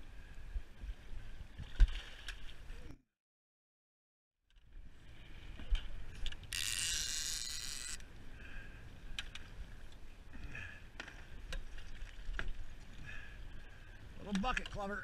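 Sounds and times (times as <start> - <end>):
reel mechanism clicks: 6.2 - 8.1
fishing reel whirring: 6.4 - 8.0.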